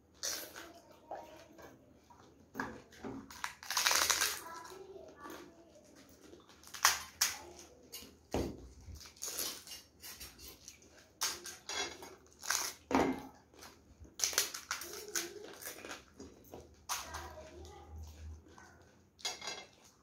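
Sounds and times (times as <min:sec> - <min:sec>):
crisp shells cracking and crunching: 0:00.1 - 0:00.7, 0:03.2 - 0:04.8, 0:06.3 - 0:07.7, 0:08.9 - 0:09.8, 0:11.2 - 0:12.9, 0:13.6 - 0:17.6.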